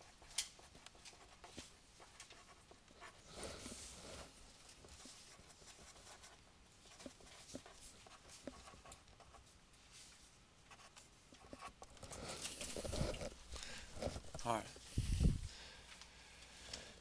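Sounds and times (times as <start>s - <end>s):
pencils writing on paper: 0.0s - 9.5s, 10.7s - 13.4s.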